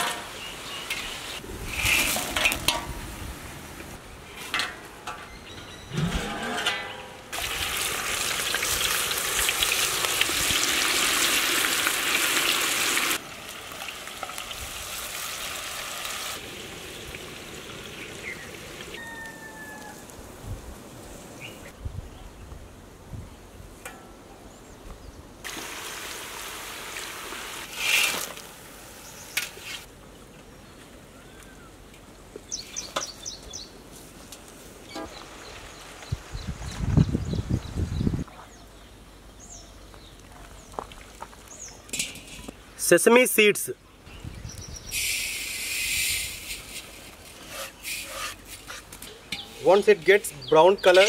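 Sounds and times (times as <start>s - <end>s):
food deep-frying in oil sizzling: 7.3s - 19.6s.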